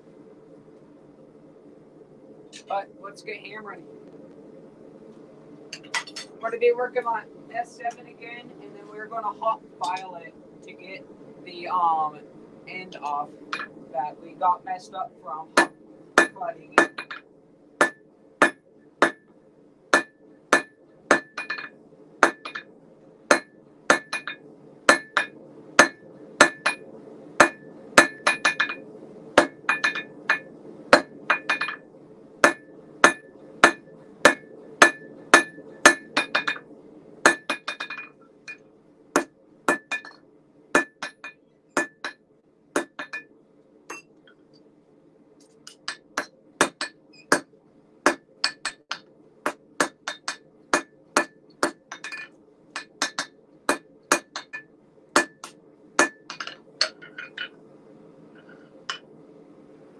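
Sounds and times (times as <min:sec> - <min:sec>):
hammer striking steel on anvil: 0:13.5 - 0:13.7, 0:15.6 - 0:17.2, 0:17.8 - 0:19.2, 0:20.0 - 0:22.6, 0:23.3 - 0:26.8, 0:27.4 - 0:28.8, 0:29.4 - 0:31.8, 0:32.4 - 0:36.6, 0:37.2 - 0:38.6, 0:39.2 - 0:40.2, 0:40.8 - 0:42.2, 0:42.8 - 0:43.3, 0:45.7 - 0:47.5, 0:48.1 - 0:57.5.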